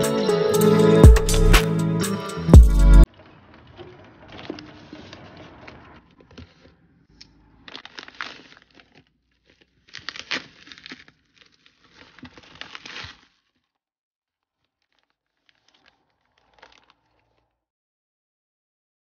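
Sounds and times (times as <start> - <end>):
plastic crinkling and tearing: 3.1 - 13.8, 14.4 - 17.6.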